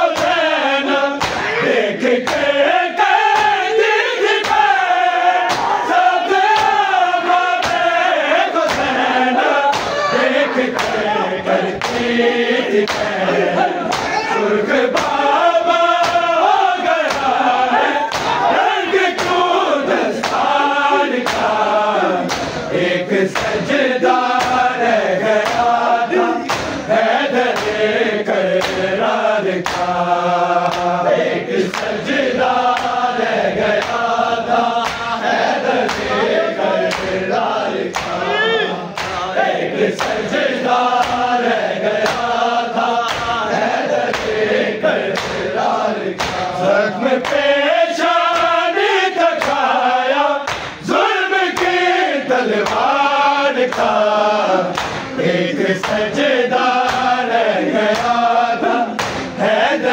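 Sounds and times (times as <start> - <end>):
men chanting in chorus: 0.0 - 59.9
hands slapping chests: 0.1 - 0.4, 1.2 - 2.5, 3.2 - 3.6, 4.4 - 4.8, 5.4 - 5.8, 6.4 - 6.9, 7.6 - 14.2, 14.9 - 15.3, 15.9 - 18.4, 19.1 - 24.7, 25.4 - 27.9, 28.5 - 30.0, 30.6 - 30.9, 31.6 - 35.2, 35.8 - 36.2, 36.8 - 37.2, 37.8 - 38.2, 38.9 - 39.3, 39.9 - 40.3, 40.9 - 41.4, 42.0 - 42.4, 43.0 - 44.4, 45.1 - 45.5, 46.2 - 46.6, 47.2 - 47.5, 48.2 - 48.6, 49.4 - 49.8, 50.4 - 50.8, 51.5 - 51.8, 52.6 - 53.0, 53.6 - 55.2, 55.8 - 56.1, 56.7 - 57.2, 57.9 - 58.2, 58.9 - 59.4.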